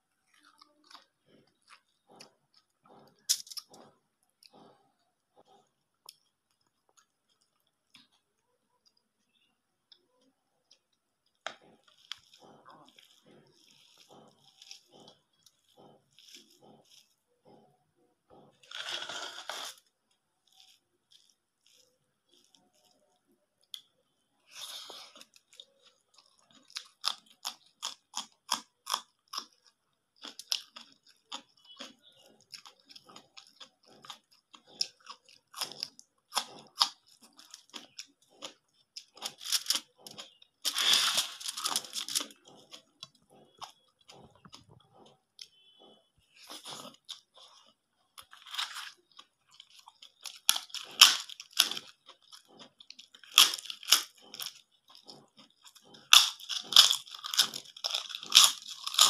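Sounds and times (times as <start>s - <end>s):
crisp crunching and chewing: 0.0s - 59.0s.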